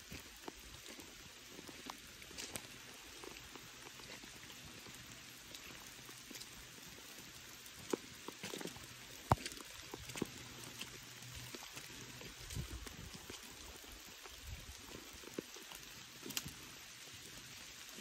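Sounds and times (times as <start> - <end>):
light rain falling: 0.0 - 18.0
raindrop taps: 7.9 - 10.9.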